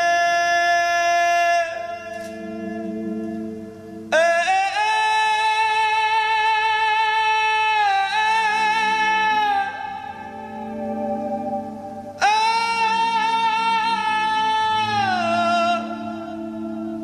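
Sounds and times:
high sustained musical note: 1.8 - 5.0, 8.2 - 17.0
low sustained tones: 1.9 - 4.8, 8.2 - 17.0.

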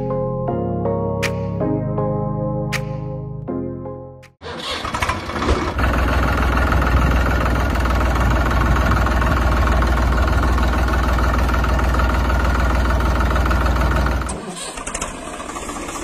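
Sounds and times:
tractor engine running: 4.4 - 16.0.

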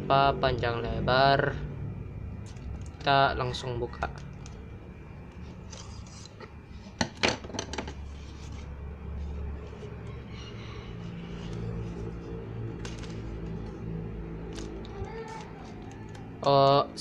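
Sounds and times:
plastic parcel rustling: 11.3 - 16.5.

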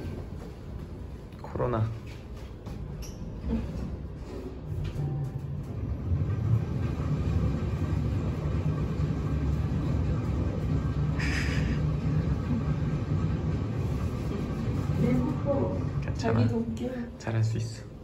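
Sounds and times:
lift car rumble: 2.9 - 16.9.

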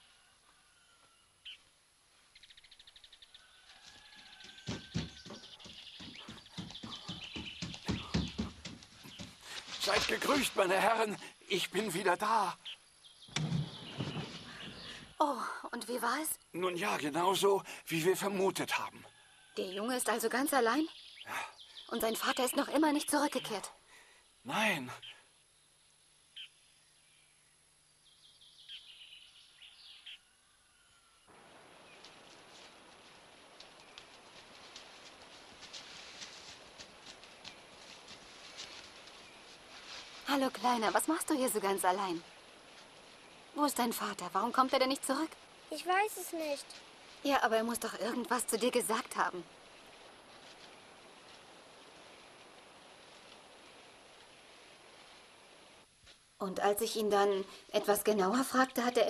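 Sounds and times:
steady outdoor hiss: 0.0 - 59.0
faint bird calls: 2.3 - 9.8, 12.6 - 15.6
approaching footsteps: 3.4 - 12.0, 31.3 - 53.5.

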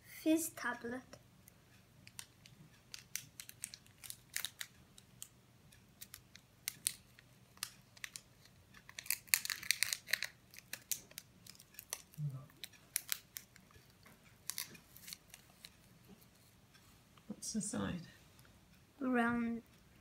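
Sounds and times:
candy wrapper crinkling: 3.0 - 4.7, 6.0 - 13.7, 14.4 - 15.7.

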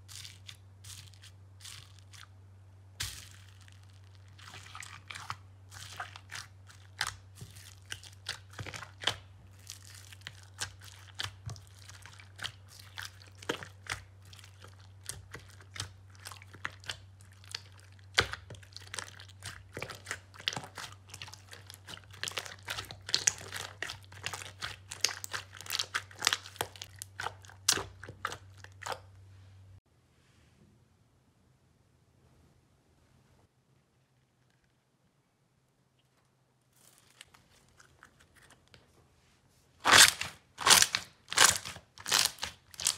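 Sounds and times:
low steady hum: 0.0 - 42.9
slime crackling and popping: 0.1 - 2.3, 3.0 - 29.1, 39.8 - 42.9.

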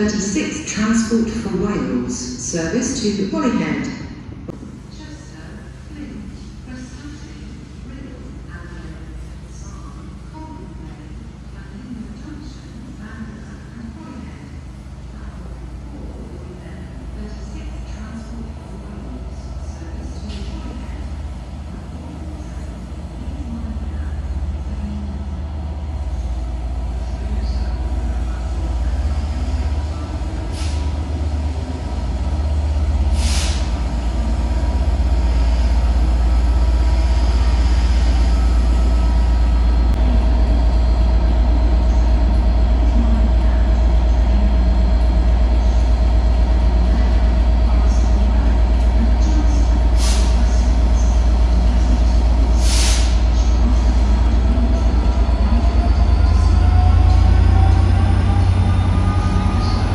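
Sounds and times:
diesel locomotive engine rumbling: 0.0 - 59.9
air brake hisses: 33.1 - 33.7, 52.6 - 53.2.

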